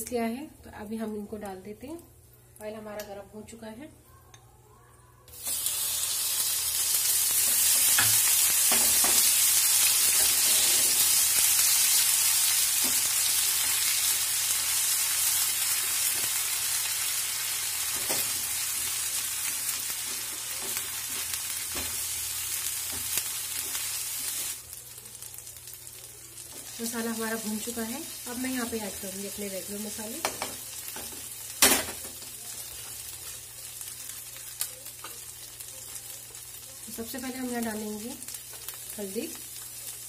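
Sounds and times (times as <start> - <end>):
paste sizzling in hot oil: 5.3 - 24.7
spatula scraping a pan: 10.0 - 11.2.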